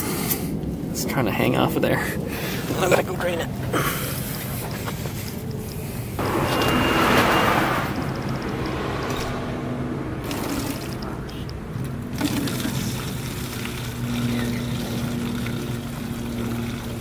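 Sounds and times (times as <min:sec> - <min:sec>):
steady low hum: 0:00.0 - 0:17.0
liquid pouring through a funnel: 0:12.1 - 0:17.0.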